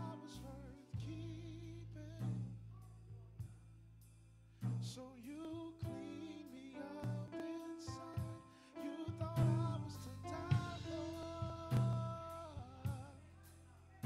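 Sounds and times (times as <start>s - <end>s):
held keyboard chords: 5.8s - 13.2s
drum hits: 9.1s - 13.2s
sustained bass note: 9.4s - 13.1s.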